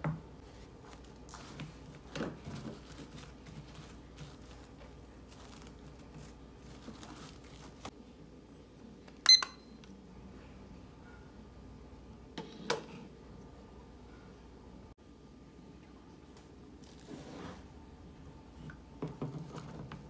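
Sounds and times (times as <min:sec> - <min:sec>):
cling film crinkling: 0:00.5 - 0:07.9
kitchen timer beeping: 0:09.2 - 0:09.7.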